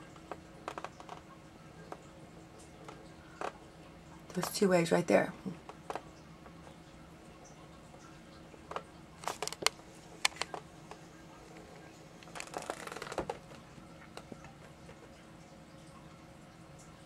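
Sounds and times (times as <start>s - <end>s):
faint steady hum: 0.0s - 17.0s
computer mouse clicks: 8.7s - 10.6s.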